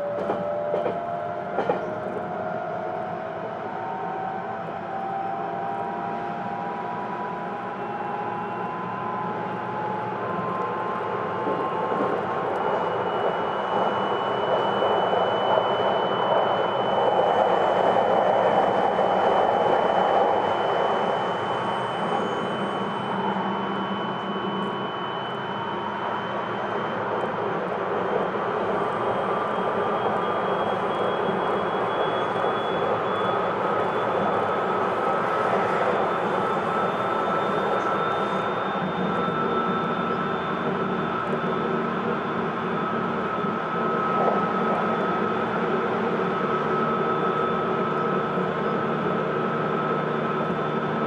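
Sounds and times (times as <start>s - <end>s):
electric train motor whine: 10.1s - 27.7s.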